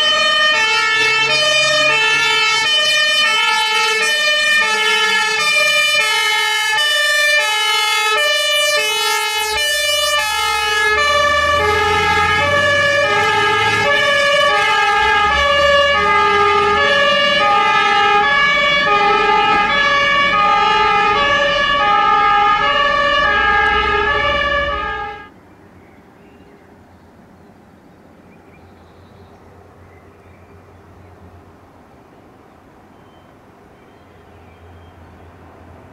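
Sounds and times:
fire engine two-tone horn: 0:00.0 - 0:25.3
truck engine rumbling: 0:00.0 - 0:25.4.

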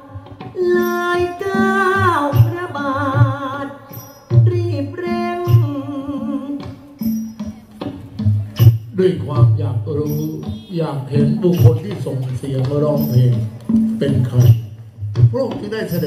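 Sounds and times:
person singing with vibrato: 0:00.0 - 0:07.8
steady drum beat: 0:00.0 - 0:16.0
traditional ensemble playing: 0:00.0 - 0:16.0.

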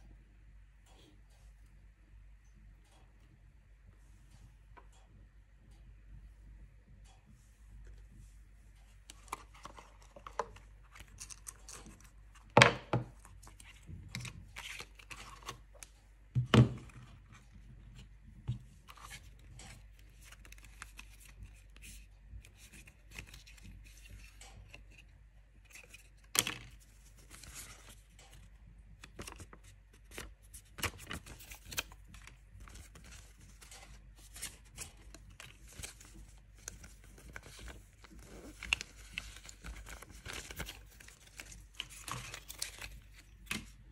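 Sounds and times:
cardboard rustling and scraping: 0:29.2 - 0:43.8.

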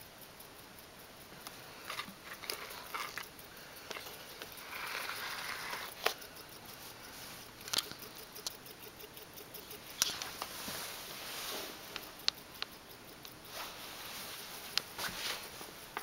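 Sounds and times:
scratchy rubbing: 0:03.9 - 0:06.1
sharp clicks and taps: 0:12.0 - 0:13.4.

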